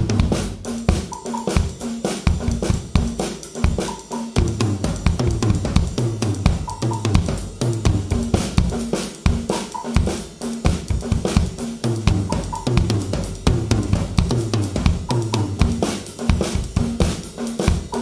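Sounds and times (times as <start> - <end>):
bass drum ostinato: 0.0 - 0.7, 4.4 - 8.8, 11.9 - 15.9
stick patterns on toms and snare: 0.0 - 18.0.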